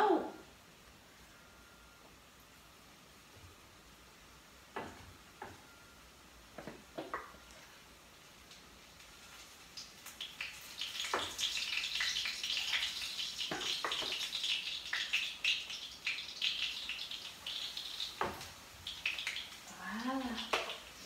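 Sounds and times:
fritters sizzling in hot oil: 3.1s - 21.0s
sharp pops and knocks: 18.2s - 18.5s.

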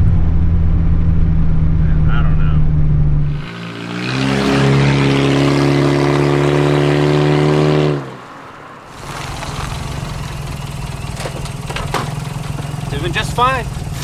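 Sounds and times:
car engine running: 0.0s - 3.5s, 8.9s - 14.0s.

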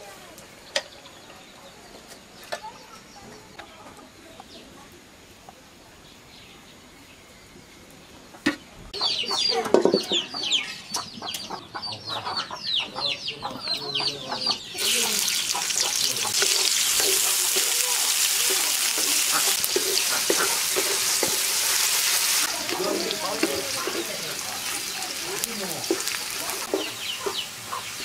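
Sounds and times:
chickens clucking and chirping: 7.8s - 28.0s
onions sizzling in hot oil: 14.8s - 28.0s.

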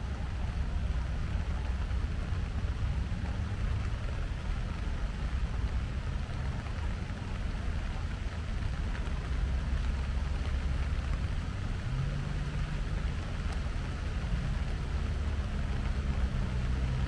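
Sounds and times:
rain falling: 0.0s - 17.0s.

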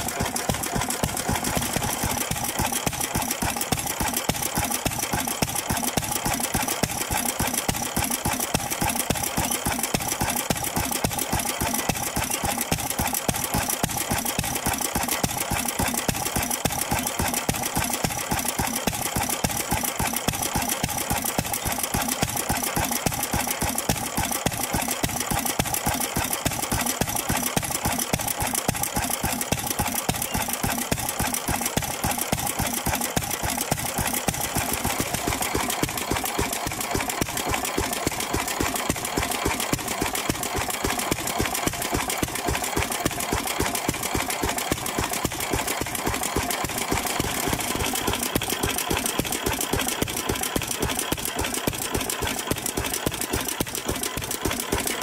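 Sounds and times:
stationary engine running: 0.0s - 55.0s.

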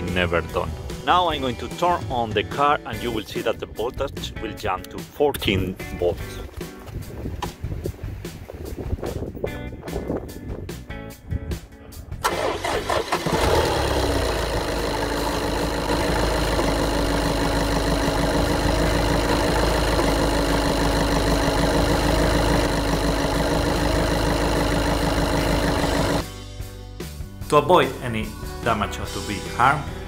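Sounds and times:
diesel engine starting and idling: 12.2s - 26.3s.

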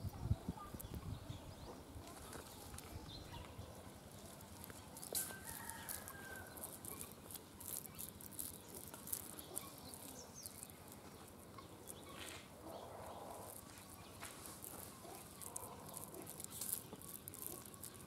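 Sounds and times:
hands scraping dry earth: 4.0s - 18.0s.

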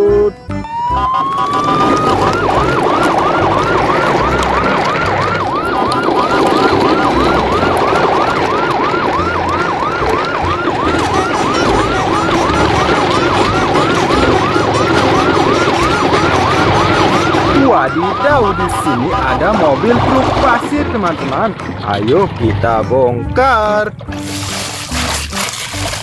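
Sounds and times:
electronic siren yelping: 0.0s - 21.0s.

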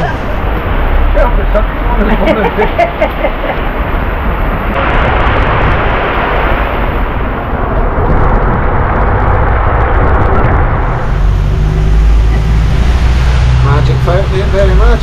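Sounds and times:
bus rumble: 0.0s - 5.0s, 7.6s - 15.0s
wind and rain buffeting microphone: 0.0s - 15.0s.

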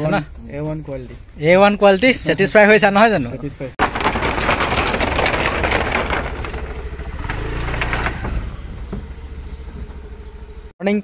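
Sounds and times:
motor scooter engine running: 6.1s - 10.7s.

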